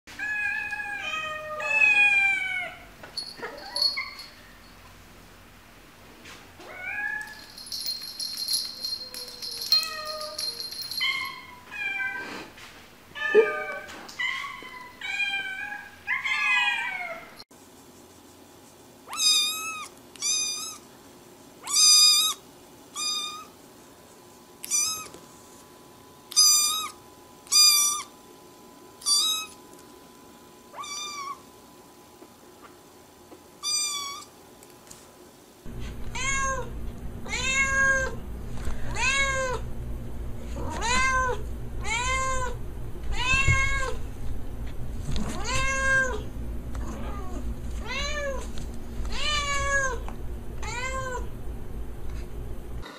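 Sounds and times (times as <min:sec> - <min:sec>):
kitten meowing: 0:19.1 - 0:20.8, 0:24.6 - 0:25.1
cats meowing: 0:35.8 - 0:38.2, 0:40.6 - 0:44.0, 0:45.2 - 0:46.2, 0:46.8 - 0:48.5, 0:49.1 - 0:51.3.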